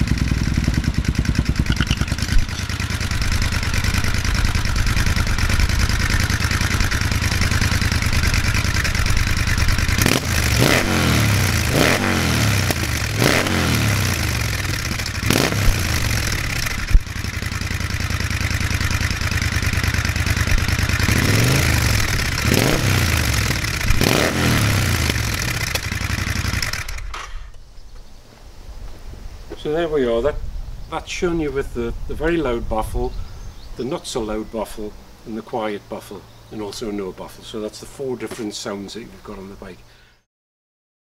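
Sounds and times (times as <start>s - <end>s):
motorcycle engine revving: 0.0s - 27.2s
sharp clicks: 1.6s - 2.7s.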